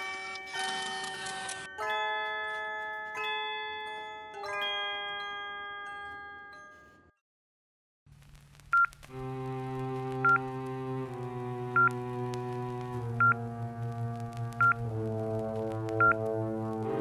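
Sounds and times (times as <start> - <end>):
chiming bell-like notes: 0.0 - 7.2
held synth chords: 9.2 - 17.0.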